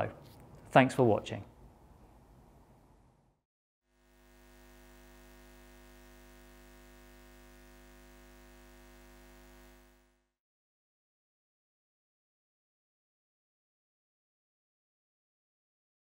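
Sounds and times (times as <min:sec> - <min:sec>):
faint hum of held tones: 0:04.0 - 0:10.3.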